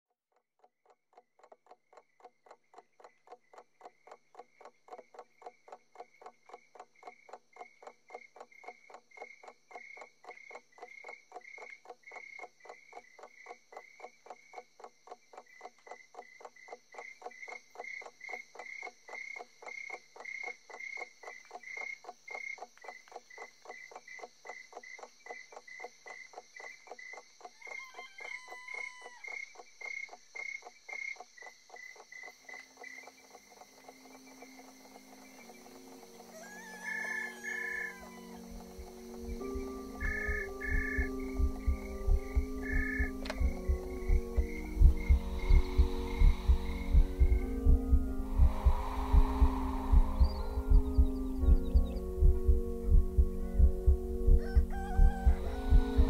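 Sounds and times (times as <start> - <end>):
crickets chirping: 5.4 - 56.0
brief animal call: 36.3 - 38.4.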